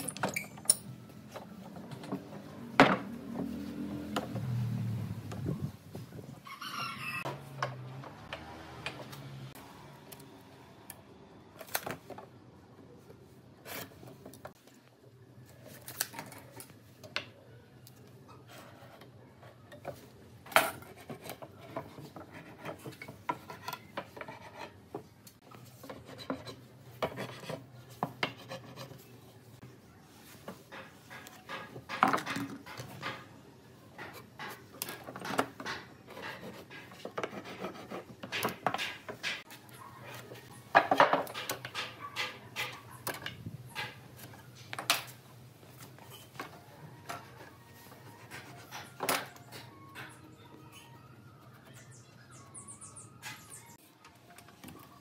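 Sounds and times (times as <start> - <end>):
rubbing and scraping: 20.7 - 25.1, 34.0 - 40.6
wood and clamps knocking: 30.7 - 33.4, 38.2 - 39.5, 40.7 - 44.0.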